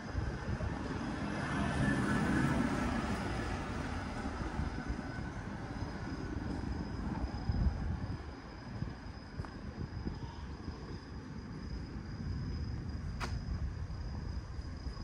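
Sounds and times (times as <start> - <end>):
passing vehicle rumble and hiss: 0.0 - 8.7.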